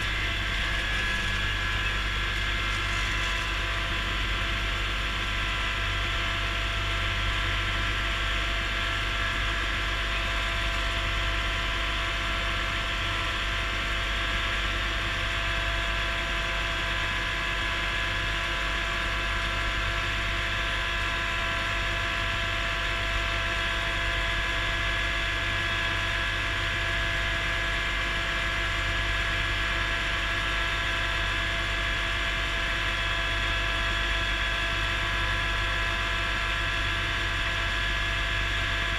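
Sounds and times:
gear whine: 0.0 - 11.9
tractor diesel engine running: 0.0 - 17.1.

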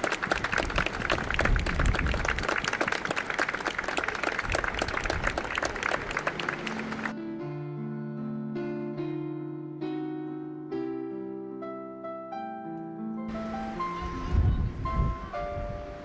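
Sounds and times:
wind on microphone: 0.0 - 2.9, 4.4 - 6.1, 13.4 - 16.0
crowd clapping: 0.0 - 7.2
piano music: 5.9 - 16.0.

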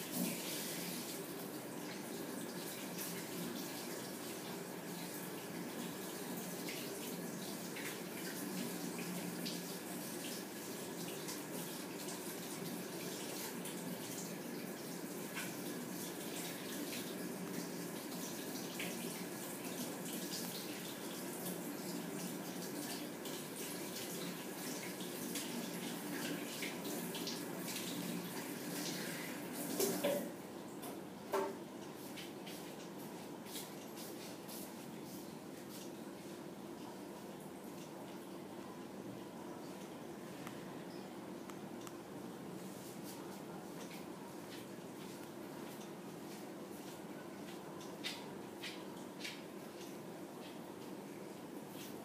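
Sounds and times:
steady background noise: 0.0 - 52.0.

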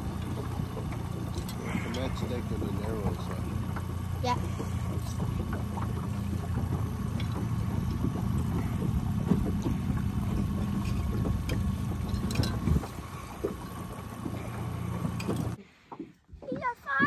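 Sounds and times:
rushing water and air: 0.0 - 16.0
outboard motor running: 0.0 - 17.0.

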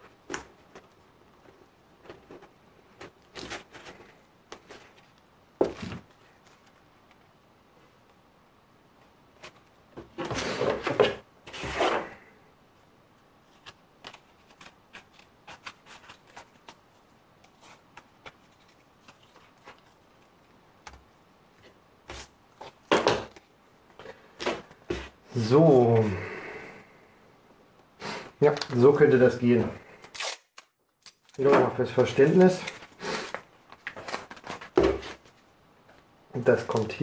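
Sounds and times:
paper rustling: 0.0 - 7.2, 13.4 - 21.0, 31.2 - 35.5.

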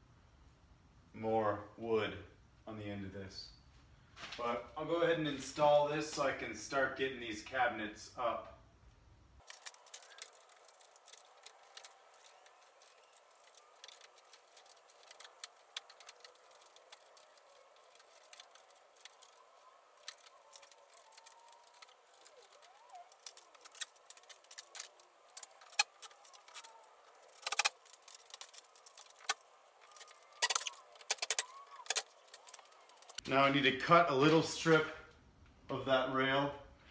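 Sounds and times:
metal clicks and rattles: 9.4 - 33.2.

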